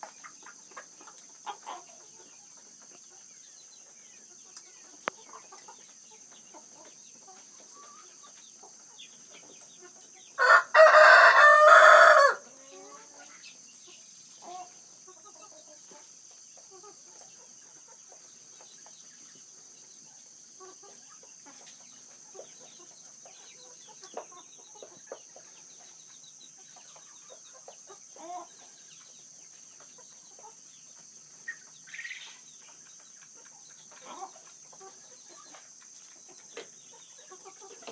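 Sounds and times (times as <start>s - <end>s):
quail peeps and chirps: 0.0s - 37.9s
quail crowing: 10.4s - 13.0s.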